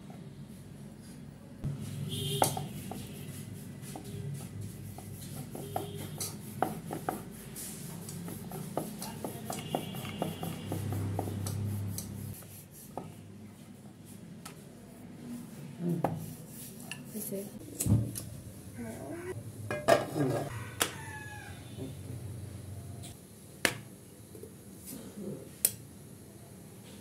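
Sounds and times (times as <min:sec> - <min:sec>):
rolling pin rubbing on dough: 0:01.8 - 0:13.2, 0:15.4 - 0:17.5.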